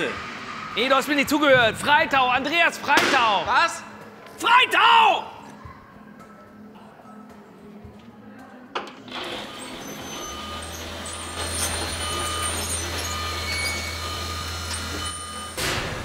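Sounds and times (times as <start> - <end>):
machine drone: 9.1 - 16.0.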